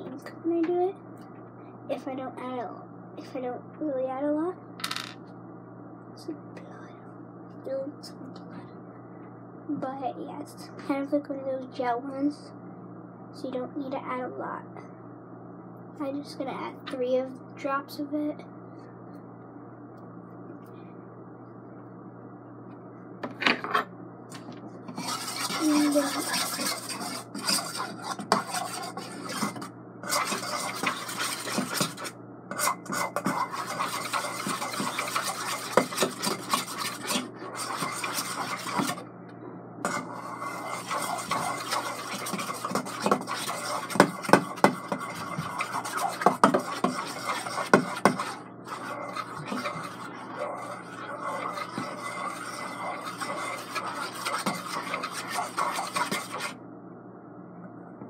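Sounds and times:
spoon scraping through glue: 24.9 - 39.0, 39.9 - 56.5.

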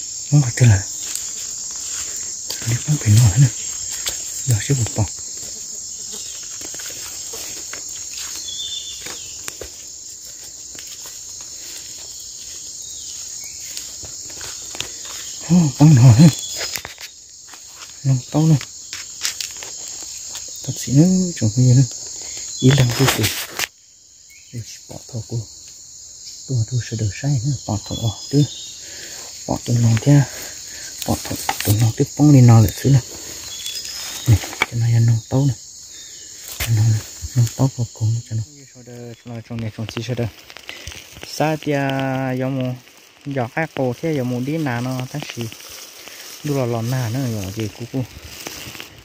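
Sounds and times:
high-pitched insect chorus: 0.0 - 49.0
man's voice: 0.3 - 0.9, 2.6 - 3.6, 4.4 - 5.1, 15.4 - 16.4, 31.0 - 33.0, 41.4 - 45.6, 46.4 - 48.1.

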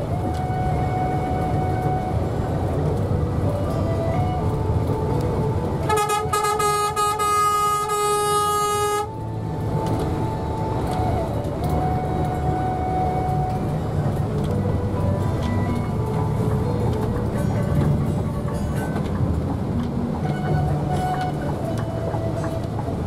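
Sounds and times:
bus driving rumble: 0.0 - 23.0
vehicle horn steady tone: 5.9 - 9.1.

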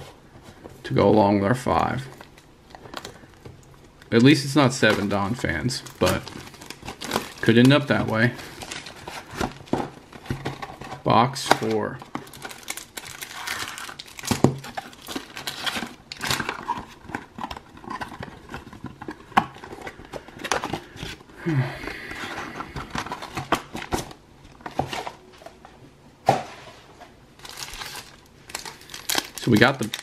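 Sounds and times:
plastic wrapping crinkling: 1.9 - 21.3, 27.4 - 30.0.

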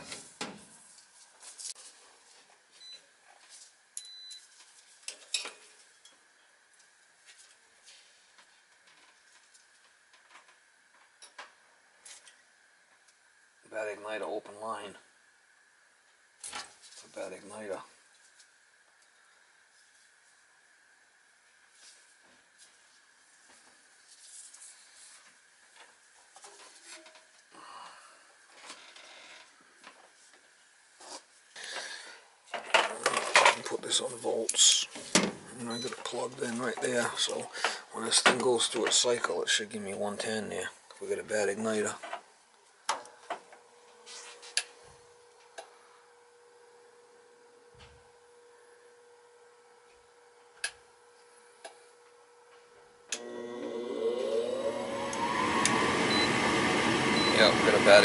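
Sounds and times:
rustling and rubbing of handling: 0.0 - 6.0, 21.6 - 27.4, 28.4 - 31.5, 43.7 - 45.2
faint steady hum: 0.0 - 58.0
scrape: 31.0 - 31.3, 44.0 - 44.6.

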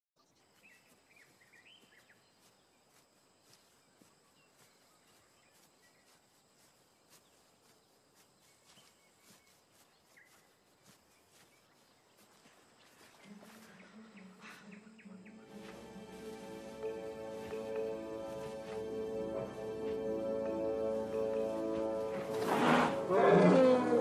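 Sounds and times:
steady background haze: 13.9 - 23.1.

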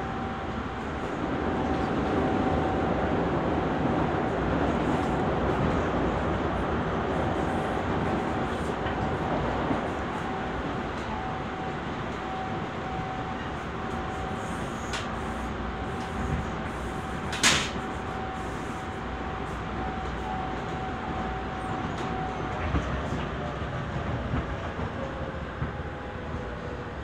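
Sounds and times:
train wheels rumbling on rail: 0.0 - 27.0.

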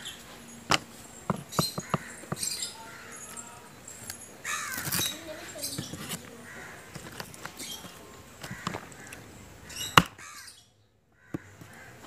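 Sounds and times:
knife chopping on wooden board: 0.7 - 2.5
crows cawing: 1.7 - 3.8, 4.4 - 5.4, 6.2 - 7.2, 8.4 - 12.0.

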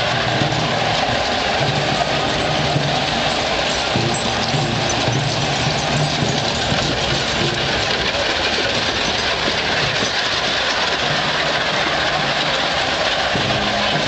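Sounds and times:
hooves and wheels on gravel: 0.0 - 14.0.

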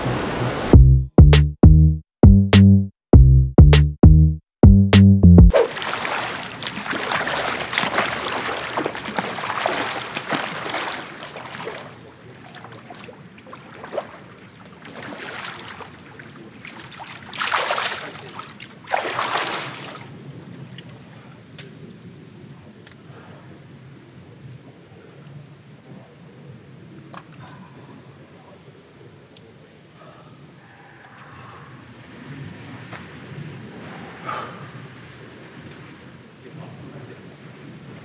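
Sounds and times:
swimmer splashing in pool: 5.5 - 20.2
water lapping: 5.5 - 21.4.

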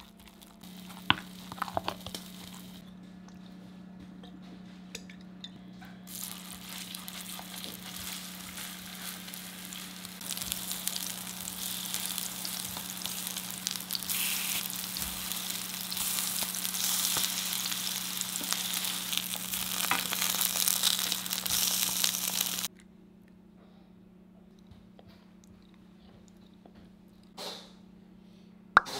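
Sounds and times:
pancakes sizzling in oil: 6.1 - 22.7.

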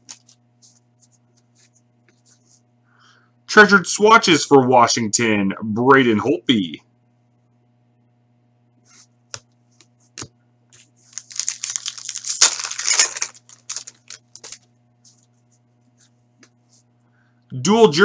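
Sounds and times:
faint electrical hum: 0.0 - 18.0
cards clicking and rustling: 10.2 - 15.3
wrapper tearing and crinkling: 11.0 - 14.7.

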